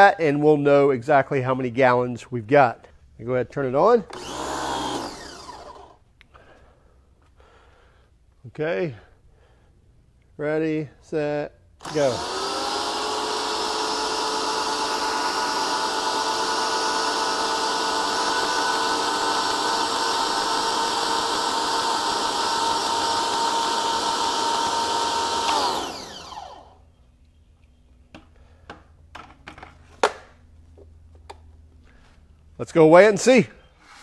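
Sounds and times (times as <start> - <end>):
pressure washer motor whining: 4.1 - 6.0, 11.8 - 26.8.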